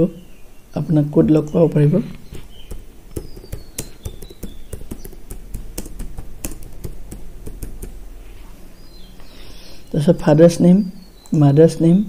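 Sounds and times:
computer keyboard typing: 0:02.3 - 0:08.0.

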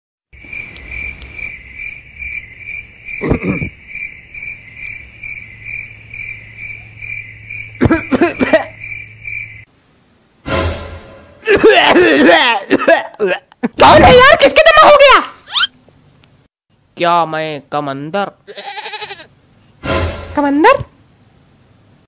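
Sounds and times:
cricket-like chirping: 0:00.3 - 0:09.7.

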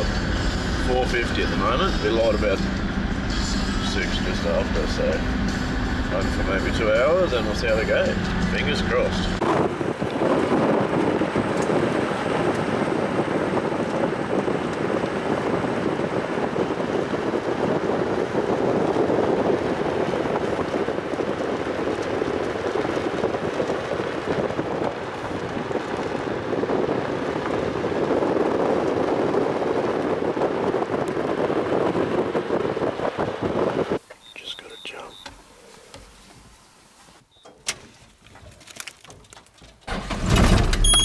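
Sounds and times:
road noise: 0:00.0 - 0:41.0
wind rushing: 0:07.9 - 0:34.0.

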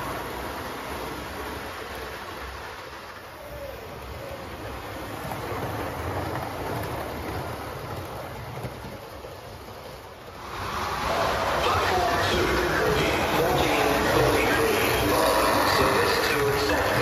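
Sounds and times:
model train rumble: 0:00.0 - 0:17.0.

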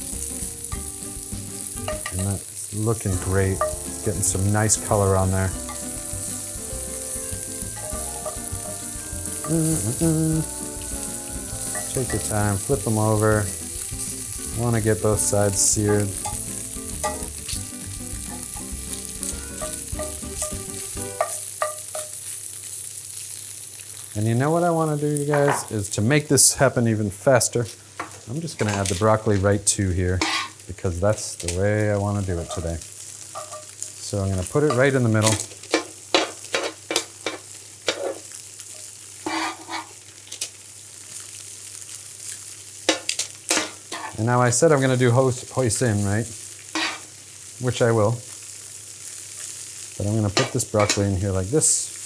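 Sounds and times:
tofu sizzling in oil: 0:00.0 - 0:26.0, 0:27.7 - 0:52.0
metal tongs clicking on pan: 0:03.6 - 0:03.8, 0:15.8 - 0:16.4, 0:21.2 - 0:22.2, 0:33.4 - 0:33.7.

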